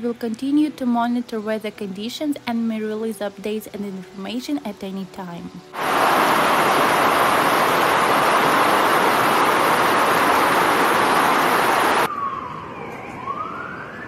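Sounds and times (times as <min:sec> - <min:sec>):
floodwater rushing down a street: 0:05.8 - 0:12.1
siren wailing: 0:09.0 - 0:14.0.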